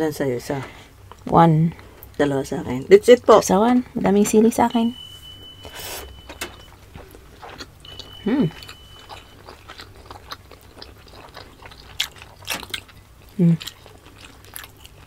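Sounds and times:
person humming: 8.2 - 8.6.

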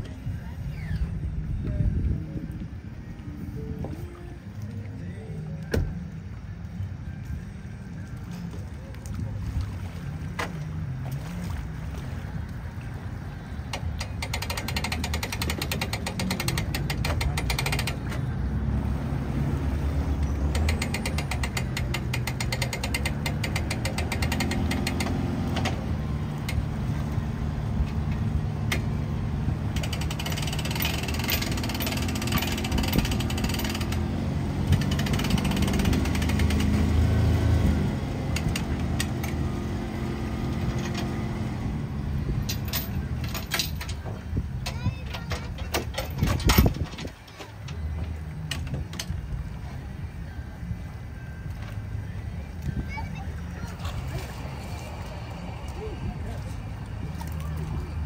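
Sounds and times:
outboard motor running: 0.0 - 58.0
winch ratchet clicking: 13.7 - 18.2, 20.5 - 25.8, 29.7 - 37.0, 38.3 - 39.5.

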